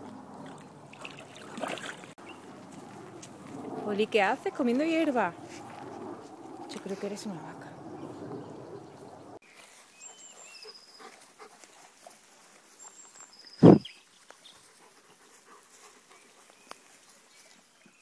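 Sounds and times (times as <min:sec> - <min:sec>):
faint birdsong: 0:02.2 - 0:02.8, 0:06.4 - 0:18.0.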